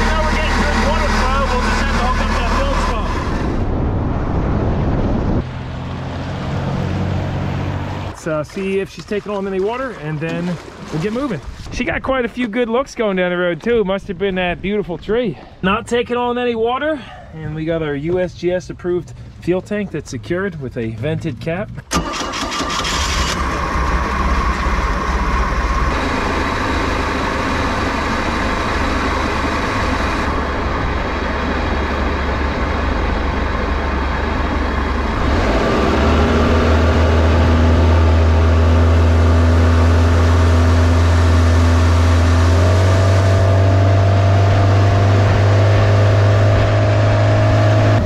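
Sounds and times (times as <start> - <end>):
boat engine running: 0.0 - 11.8, 20.2 - 48.0.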